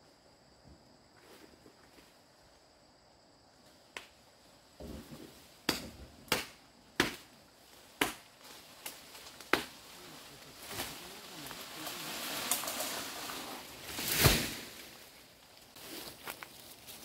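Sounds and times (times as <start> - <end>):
rustle: 0.0 - 17.0.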